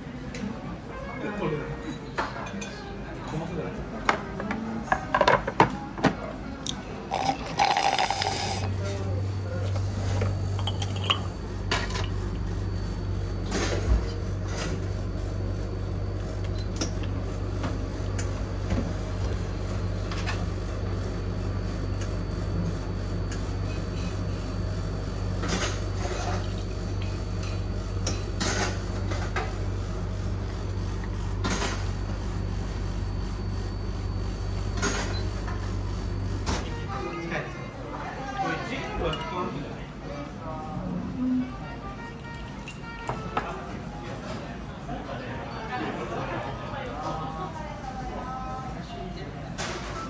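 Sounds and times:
low machine hum: 0:06.4 - 0:38.1
ice cubes clinking in mug: 0:07.1 - 0:08.7, 0:10.6 - 0:11.3.

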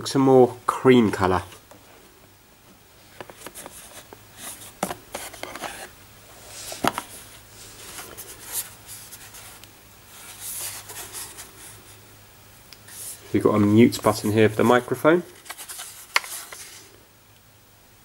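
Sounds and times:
speaker rubbing against cardboard box: 0:03.4 - 0:12.0, 0:14.6 - 0:16.9.

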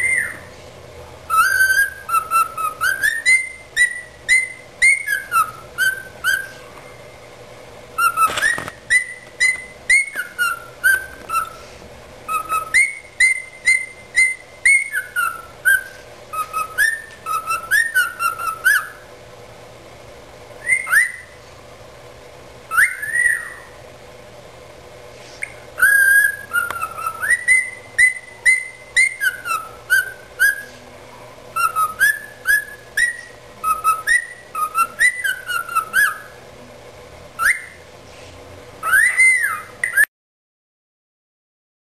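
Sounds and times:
cockatiel whistling: 0:00.0 - 0:00.5, 0:01.3 - 0:06.7, 0:08.0 - 0:11.7, 0:12.3 - 0:19.1, 0:20.6 - 0:21.4, 0:22.7 - 0:23.8, 0:25.4 - 0:30.8, 0:31.5 - 0:36.4, 0:37.4 - 0:37.8, 0:38.8 - 0:40.1.

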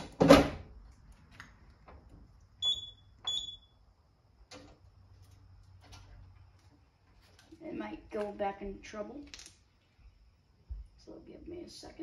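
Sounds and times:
alarm panel short high beeps: 0:02.6 - 0:03.7.

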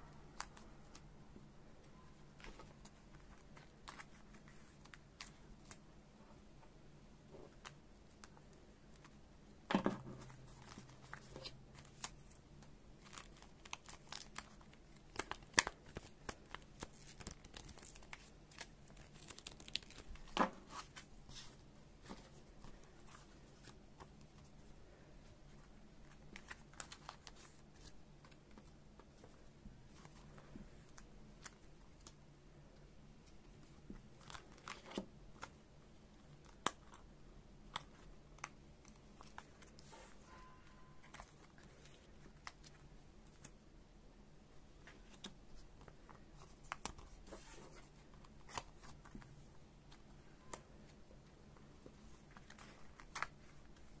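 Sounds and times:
plastic card sleeves rustling: 0:02.3 - 0:05.8, 0:13.0 - 0:24.6, 0:25.5 - 0:32.2.

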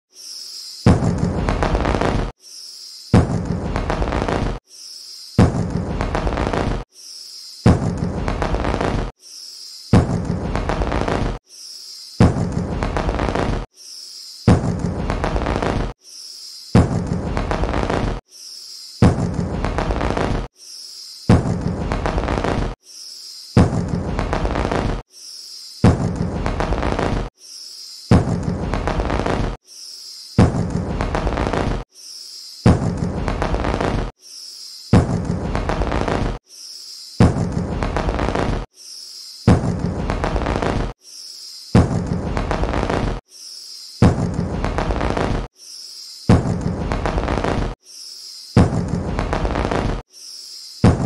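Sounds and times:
firework whistle: 0:00.4 - 0:02.3, 0:03.2 - 0:04.6, 0:05.4 - 0:06.8, 0:07.7 - 0:09.1, 0:10.1 - 0:11.4, 0:12.2 - 0:13.6, 0:21.6 - 0:22.8, 0:23.6 - 0:25.0, 0:30.5 - 0:31.8, 0:32.8 - 0:34.1, 0:35.1 - 0:36.4, 0:41.9 - 0:43.2, 0:44.1 - 0:45.5, 0:46.9 - 0:47.7, 0:48.6 - 0:50.0
firework crackling burst: 0:03.4 - 0:04.6, 0:05.6 - 0:06.8, 0:07.9 - 0:09.1, 0:10.1 - 0:11.4, 0:12.4 - 0:13.6, 0:19.4 - 0:20.5, 0:21.6 - 0:22.7, 0:26.4 - 0:27.2, 0:30.7 - 0:31.8, 0:33.0 - 0:34.1, 0:35.2 - 0:36.4, 0:37.4 - 0:38.6, 0:42.0 - 0:43.2, 0:44.2 - 0:45.5, 0:46.5 - 0:47.7, 0:48.8 - 0:50.0.

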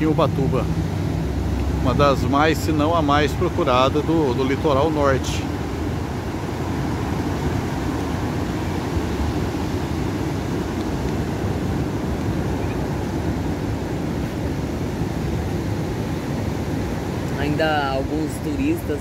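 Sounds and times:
sea surf breaking on beach: 0:00.0 - 0:19.0.

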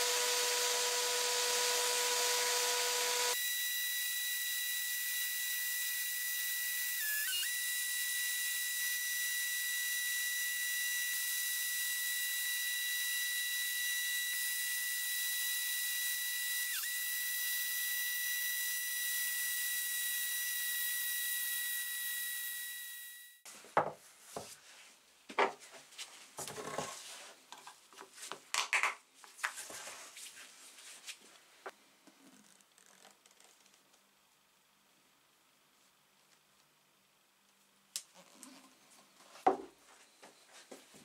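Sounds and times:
drill motor whine: 0:00.0 - 0:23.4
knocks and rustles of handling: 0:23.5 - 0:34.0.

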